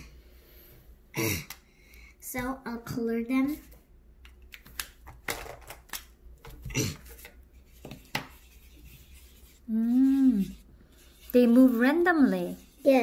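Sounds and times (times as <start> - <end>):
child's voice: 2.2 - 3.7, 12.3 - 13.0
marker scratching and tapping paper: 6.4 - 13.0.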